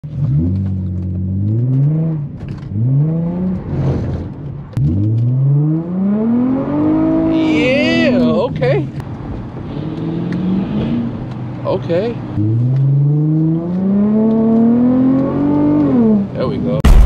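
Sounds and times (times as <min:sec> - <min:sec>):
car engine revving hard: 0:04.8 - 0:08.2, 0:12.4 - 0:16.3.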